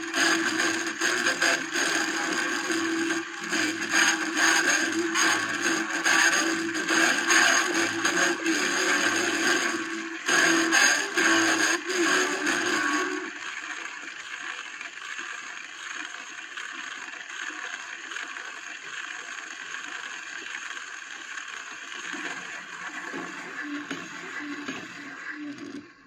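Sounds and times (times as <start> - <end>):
old record music: 0.0 - 13.4, 22.0 - 25.9
record surface hiss and crackle: 0.0 - 26.0.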